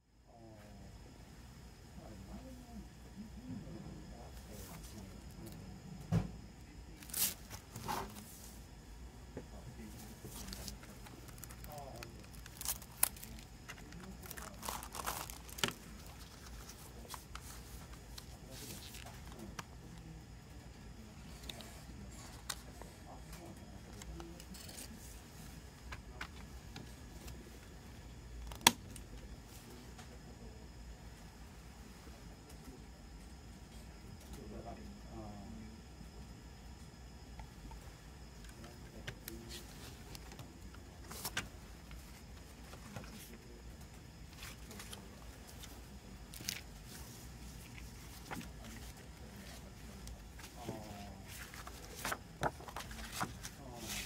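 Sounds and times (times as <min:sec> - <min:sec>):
paper rustling: 0:07.0 - 0:08.4, 0:09.9 - 0:19.6, 0:44.4 - 0:54.0
crinkly plastic wrap scrapes: 0:11.4 - 0:17.2.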